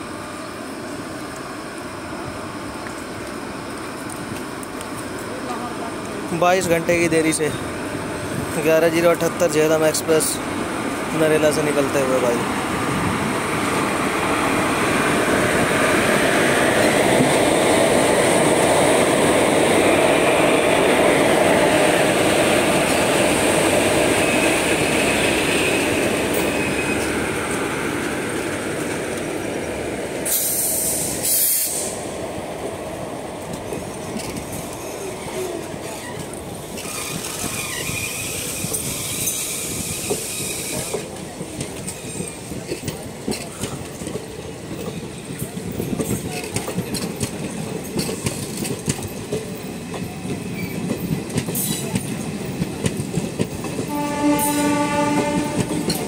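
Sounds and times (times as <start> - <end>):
train wheels rumbling on rails: 0.0 - 56.0
short hissing bursts: 30.3 - 32.0.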